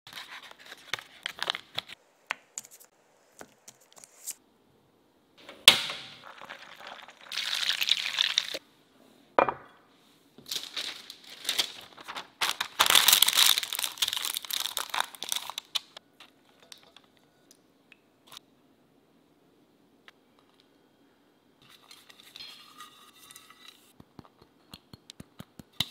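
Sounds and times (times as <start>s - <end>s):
parchment paper crinkling: 0.1s - 2.0s, 10.4s - 17.0s.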